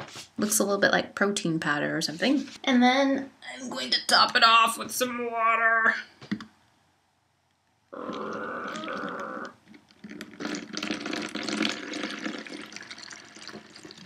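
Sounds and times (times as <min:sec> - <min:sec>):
water pouring into a jug: 0:10.0 - 0:14.0.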